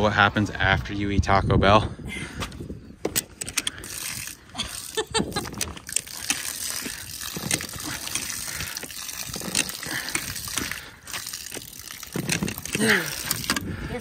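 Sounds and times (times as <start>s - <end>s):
water splashing onto wooden pallets: 3.7s - 14.0s.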